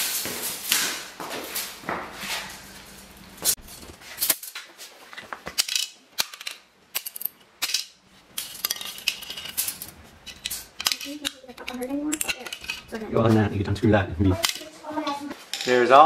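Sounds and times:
small parts clattering on concrete: 2.4s - 13.0s, 14.4s - 14.7s, 15.4s - 16.0s.

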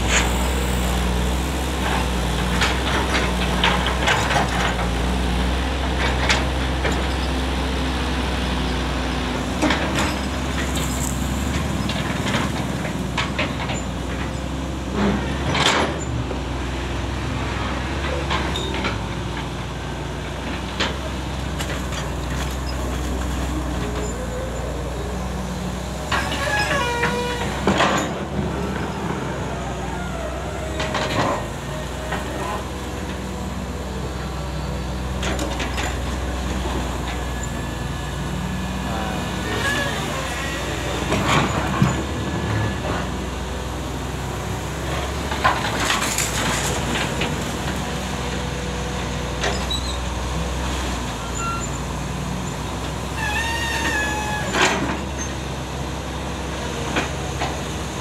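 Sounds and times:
excavator diesel engine running: 0.0s - 58.0s
brief squealing tone: 51.2s - 51.8s, 53.2s - 54.6s.

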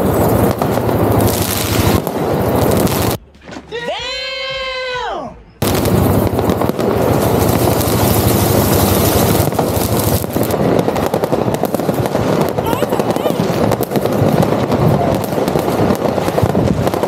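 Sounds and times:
firecrackers and fireworks banging: 0.0s - 4.5s, 5.6s - 17.0s
drawn-out voice: 12.6s - 13.5s.

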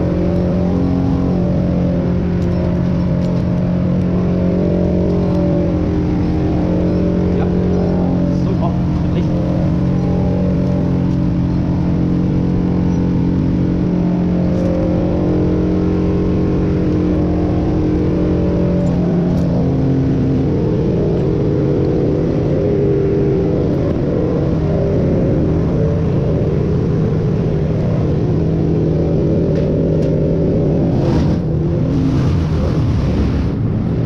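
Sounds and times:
diesel engine running: 0.0s - 34.0s.

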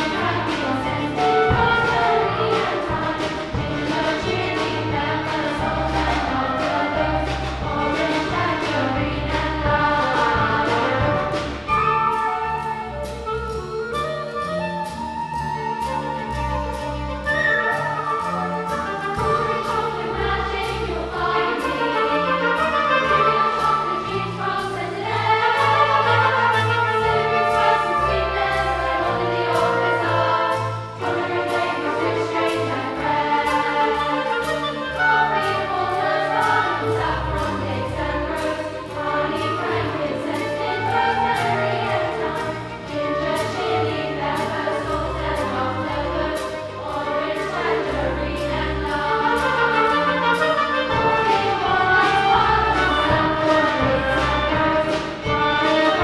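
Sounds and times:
children's choir singing: 0.0s - 12.7s, 16.2s - 56.0s
orchestra playing: 0.0s - 56.0s.

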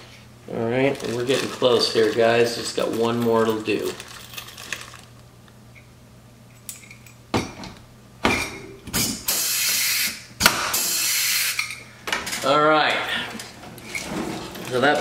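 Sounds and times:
rivet gun air hiss: 9.0s - 11.7s.

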